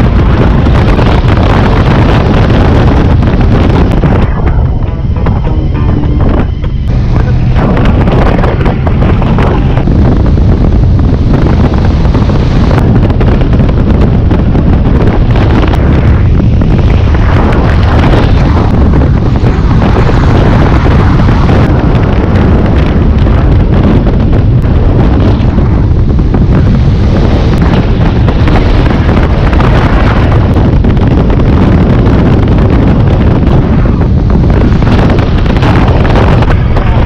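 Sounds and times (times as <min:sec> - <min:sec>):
motorcycle engine: 0:00.0 - 0:30.6
wind buffeting microphone: 0:00.0 - 0:37.0.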